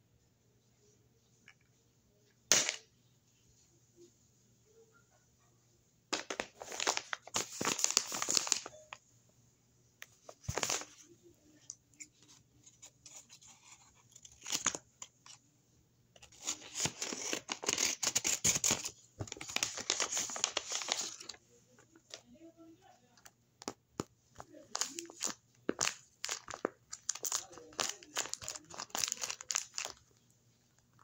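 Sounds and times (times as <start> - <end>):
paper bag tearing and crinkling: 27.1 - 30.0.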